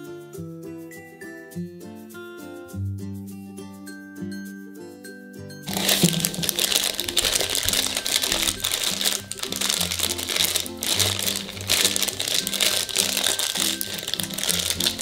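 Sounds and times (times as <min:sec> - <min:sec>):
foil bag crinkling and tearing: 0:05.7 - 0:15.0
upbeat background music: 0:05.7 - 0:15.0.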